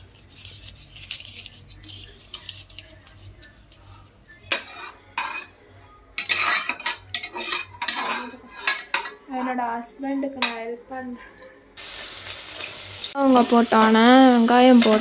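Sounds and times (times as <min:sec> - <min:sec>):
metal spoon scraping pot: 0:00.2 - 0:05.6, 0:06.2 - 0:09.2.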